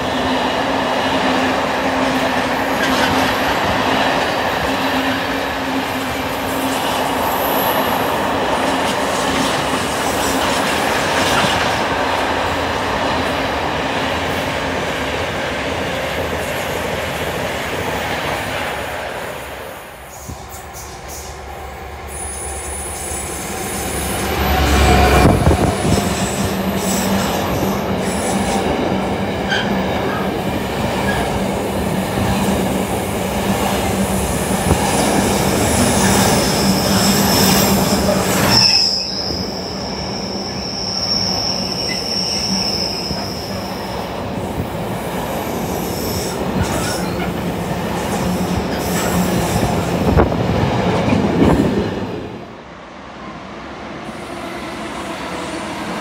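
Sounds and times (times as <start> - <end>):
freight train passing: 0.0 - 56.0
train wheels squealing: 22.1 - 28.6, 35.7 - 44.1, 45.7 - 47.3.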